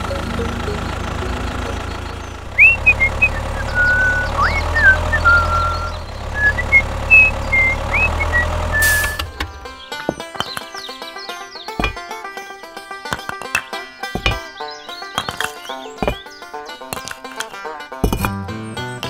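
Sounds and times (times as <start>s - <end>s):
model tractor engine idling: 0.0s - 10.4s
high whistled chirps: 0.6s - 9.4s.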